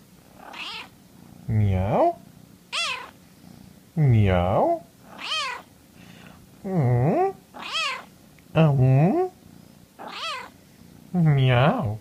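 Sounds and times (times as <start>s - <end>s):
kitten meowing: 0.5s - 0.9s, 2.7s - 3.1s, 5.1s - 5.6s, 7.6s - 8.1s, 10.0s - 10.5s.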